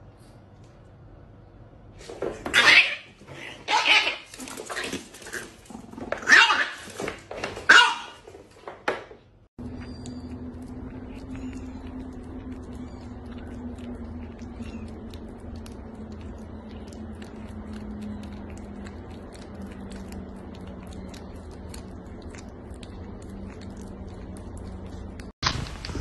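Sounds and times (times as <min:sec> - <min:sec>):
kitten licking and chewing: 0:09.6 - 0:25.4
low hum: 0:09.6 - 0:26.0.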